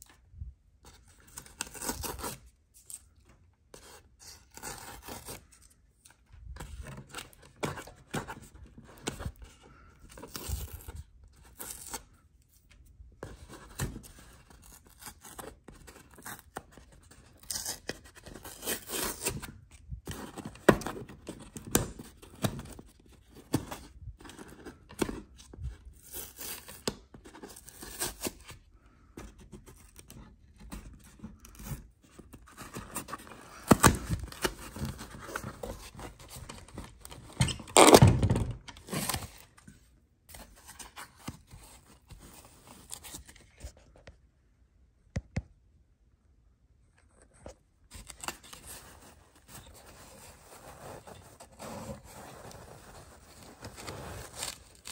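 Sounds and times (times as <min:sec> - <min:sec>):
packaging tearing and scraping: 0:01.2 - 0:03.1, 0:03.8 - 0:05.7, 0:13.3 - 0:25.2, 0:31.4 - 0:39.6, 0:47.9 - 0:54.9.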